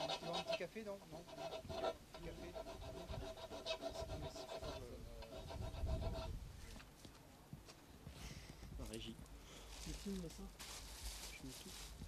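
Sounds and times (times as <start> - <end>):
angle grinder cutting wood: 0.0 - 5.8.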